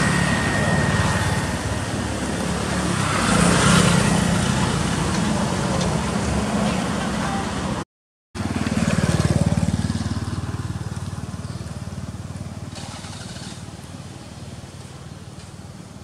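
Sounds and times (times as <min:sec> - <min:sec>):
small engine running: 0:08.4 - 0:13.8.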